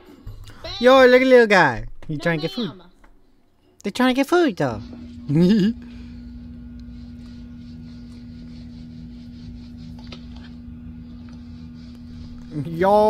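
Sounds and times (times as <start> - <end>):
steady low hum: 0.0 - 3.5, 4.6 - 13.0.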